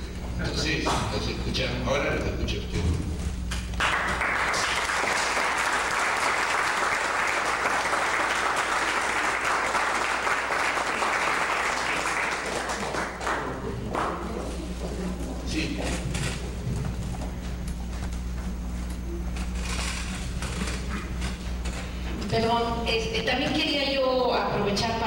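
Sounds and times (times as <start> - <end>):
audience applauding: 3.7 - 14.7.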